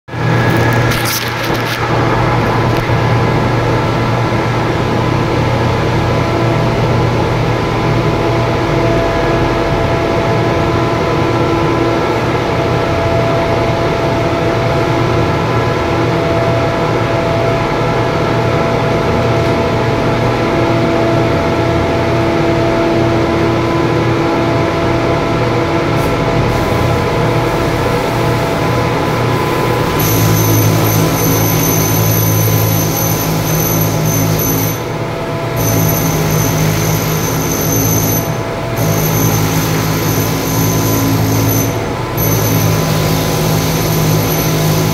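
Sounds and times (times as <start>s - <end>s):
industrial machinery drone: 0.0s - 44.9s
high whining hiss: 35.6s - 44.9s.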